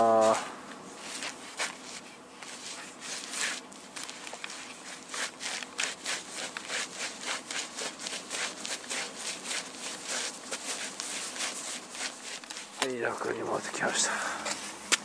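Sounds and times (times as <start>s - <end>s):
quick footsteps: 1.0s - 13.0s.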